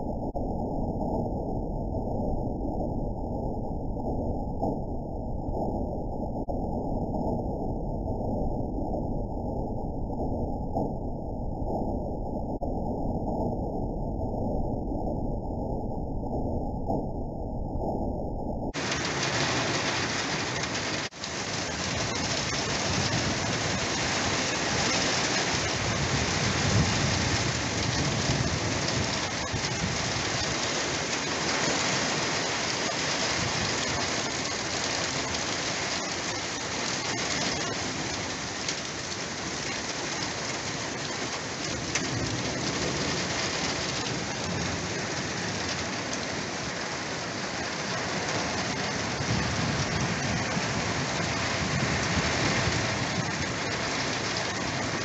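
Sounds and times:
low thunder rumble: 0.0 - 32.2, 41.0 - 46.5, 48.1 - 55.0
heavy rain pouring: 18.7 - 55.0.

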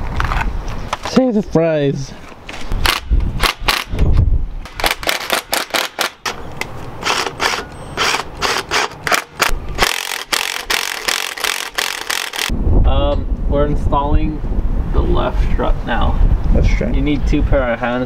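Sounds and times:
impact wrench hammering: 4.6 - 12.5.

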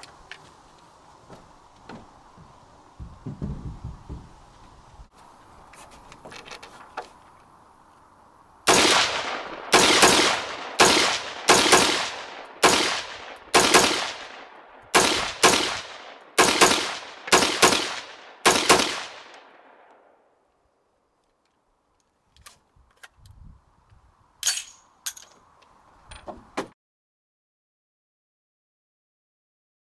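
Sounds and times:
rifle shots with echo: 8.7 - 20.0
light metallic clicks and clanks: 24.4 - 26.4.

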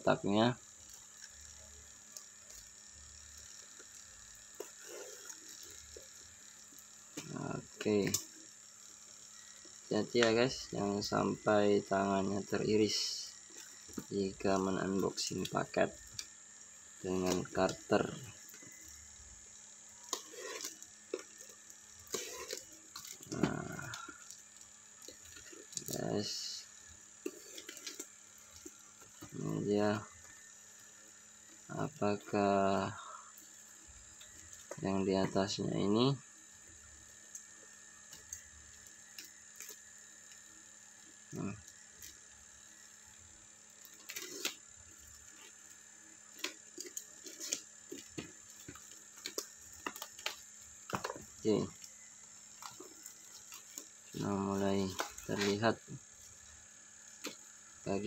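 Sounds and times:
faint steady hum: 0.0 - 58.0
tape and plastic crackling: 12.9 - 30.5, 41.2 - 57.8.

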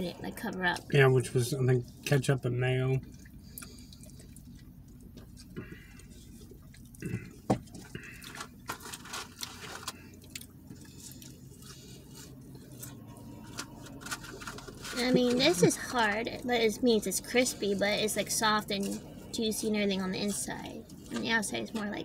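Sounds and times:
low car cabin hum: 0.0 - 22.0
food and cup rustling: 3.0 - 16.5.

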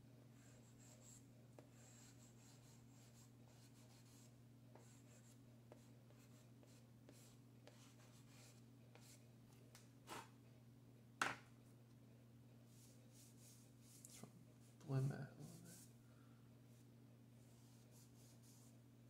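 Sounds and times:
chalk pastel scratching on paper: 0.4 - 9.2, 15.4 - 15.9, 17.4 - 18.7.

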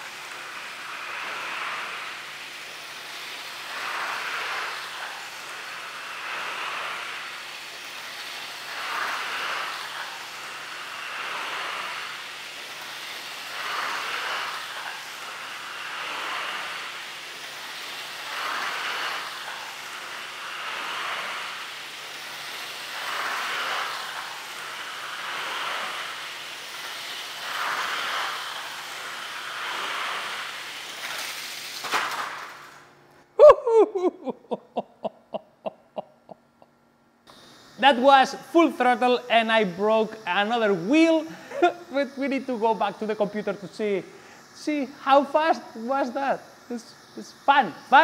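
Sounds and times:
toy train rolling on track: 6.4 - 32.9.

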